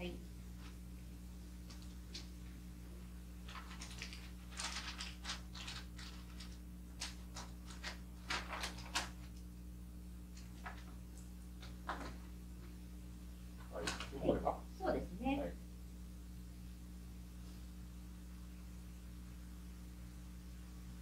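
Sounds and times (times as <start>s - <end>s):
steady low hum: 0.0s - 21.0s
wrapping paper rustling: 3.3s - 9.5s, 10.3s - 12.3s.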